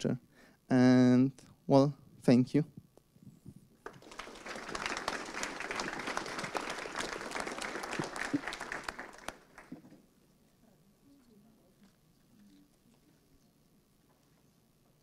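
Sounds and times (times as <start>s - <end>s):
audience applauding: 3.8s - 9.8s.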